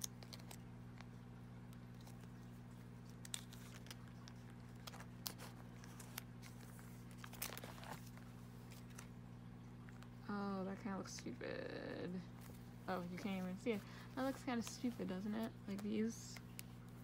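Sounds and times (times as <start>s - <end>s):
plastic sleeve crinkling and clicking: 0.0s - 9.2s, 14.3s - 17.0s
steady low hum: 0.0s - 17.0s.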